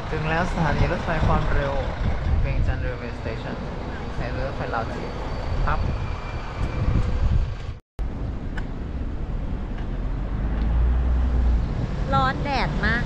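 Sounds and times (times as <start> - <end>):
traffic noise: 0.0 - 13.0
tuk-tuk engine: 0.0 - 13.0.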